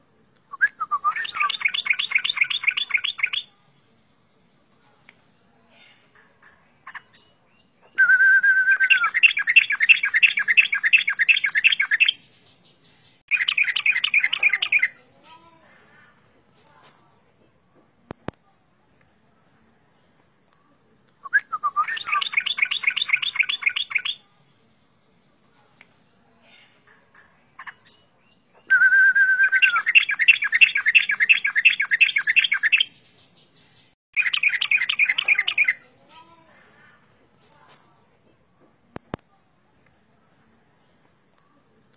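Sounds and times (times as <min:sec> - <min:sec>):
bird whistling and trilling: 0:00.5 - 0:03.5, 0:07.1 - 0:12.4, 0:13.3 - 0:15.0, 0:21.2 - 0:24.2, 0:28.6 - 0:33.2, 0:34.2 - 0:35.8
bulbul singing: 0:00.5 - 0:06.0, 0:06.8 - 0:15.1, 0:21.2 - 0:26.8, 0:27.5 - 0:36.0.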